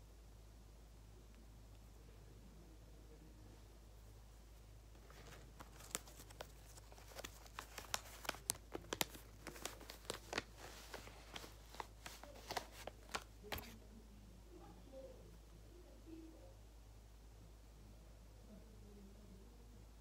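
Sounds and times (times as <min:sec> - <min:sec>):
paper crinkling and crackling: 0:04.9 - 0:13.8.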